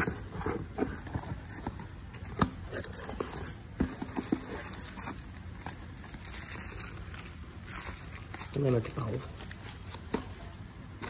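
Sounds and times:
cardboard box rustling: 0.0 - 11.0.

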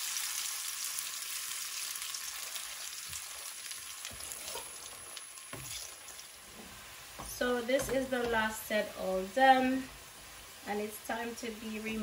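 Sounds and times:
hot oil sizzling: 0.0 - 12.0
faint knocks: 6.6 - 8.4.

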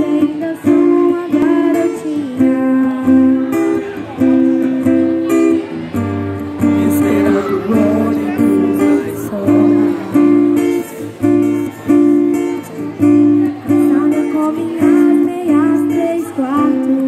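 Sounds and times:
acoustic guitar strumming chords: 0.0 - 17.0.

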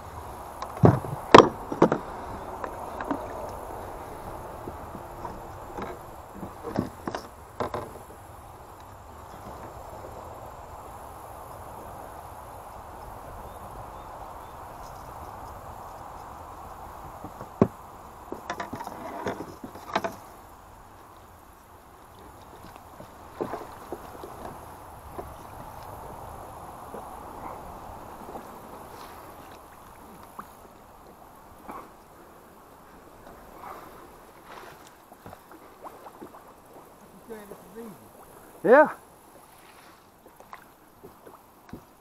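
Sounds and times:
paddle knocking against kayak hull: 0.6 - 3.5, 4.6 - 8.2, 17.0 - 20.3, 22.2 - 26.2.

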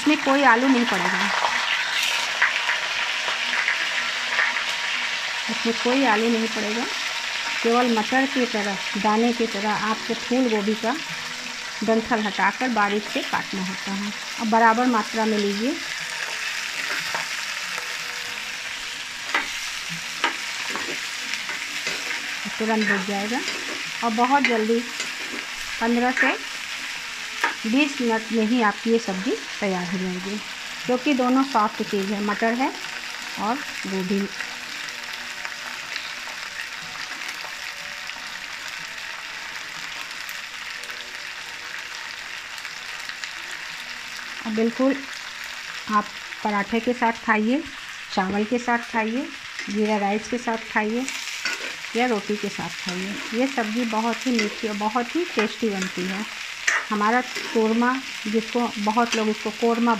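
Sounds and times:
vegetables sizzling in hot oil: 0.0 - 59.9.

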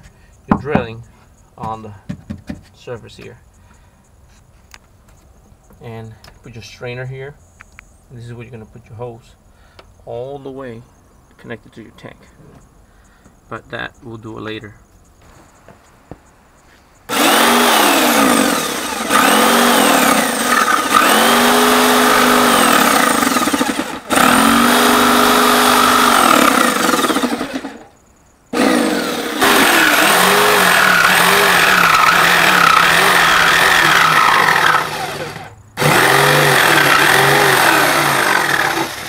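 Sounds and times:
jigsaw cutting plastic: 17.1 - 27.9, 28.6 - 39.0.

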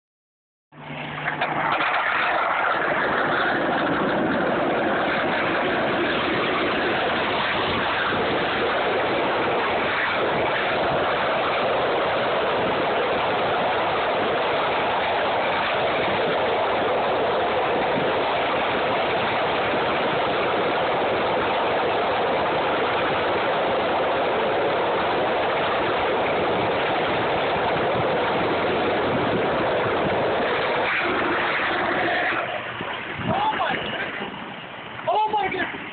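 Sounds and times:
wheels rolling on rough asphalt: 0.7 - 35.9.

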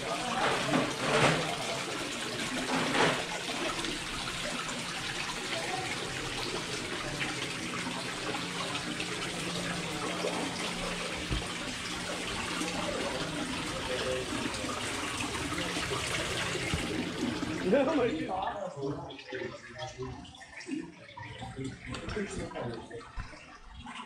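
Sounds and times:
waterfall splashing into pond: 0.0 - 18.0.

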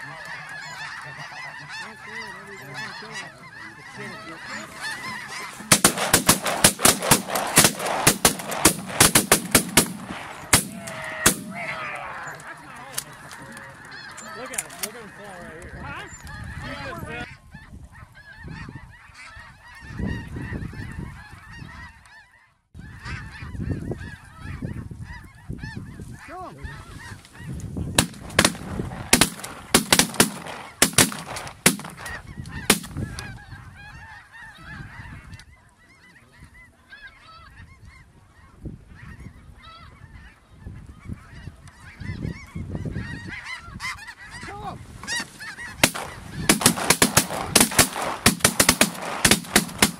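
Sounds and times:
flock of geese honking: 0.0 - 49.9
sharp clicks: 28.0 - 33.0, 45.8 - 49.9.

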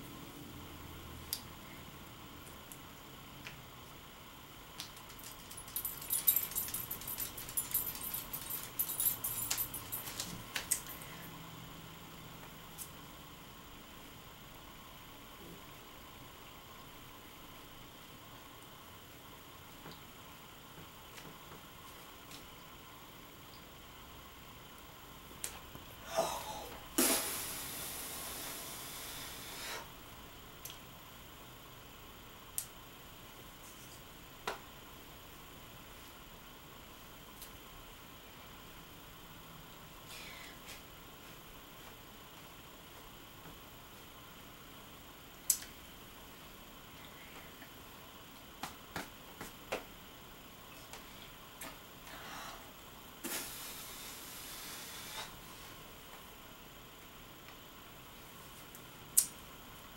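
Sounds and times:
light metallic jingling: 5.1 - 11.3
person blowing air through lips: 26.1 - 29.9.

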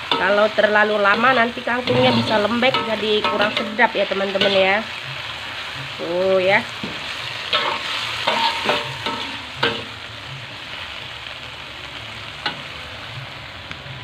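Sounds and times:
greens sizzling in a wok: 0.0 - 14.0
spatula scraping and knocking pan: 1.1 - 5.2, 6.8 - 9.8.

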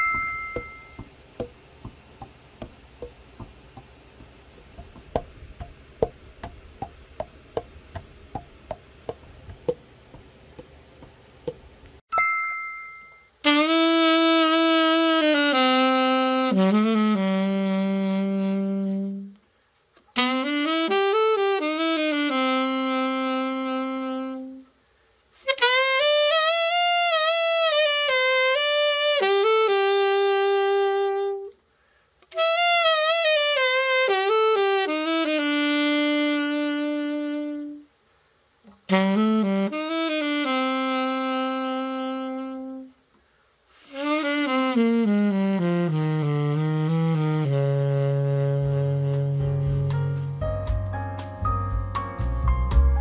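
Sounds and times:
alto saxophone playing: 0.0 - 9.8, 13.4 - 19.4, 20.0 - 24.8, 25.4 - 31.6, 32.3 - 38.0, 38.7 - 43.0, 43.7 - 51.0.

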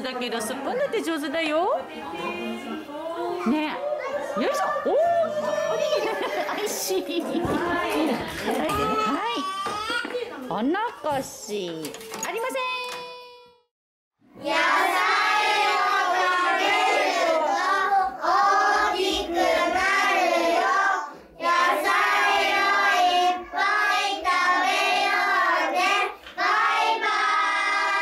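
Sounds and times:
children singing in unison: 14.4 - 28.0.

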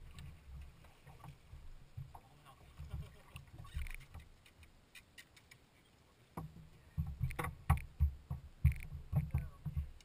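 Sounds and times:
sharp knocks: 6.4 - 10.0.

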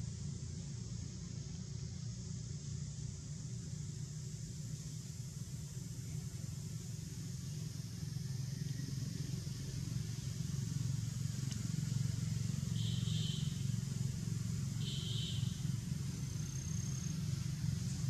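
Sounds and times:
thin whistle: 12.7 - 13.6, 14.8 - 15.6.

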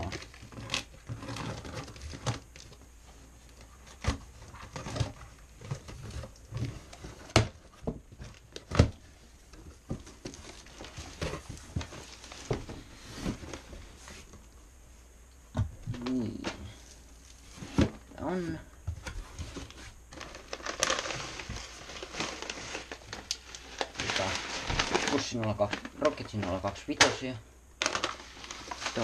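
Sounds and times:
cardboard flaps scraping and rustling: 0.0 - 14.4, 17.4 - 18.2, 18.9 - 27.2, 27.8 - 29.0
packing tape tearing: 19.6 - 27.1.

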